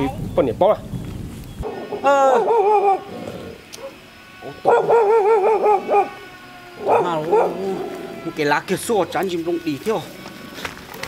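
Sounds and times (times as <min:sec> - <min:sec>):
dog whining and howling: 0:01.6 - 0:08.4.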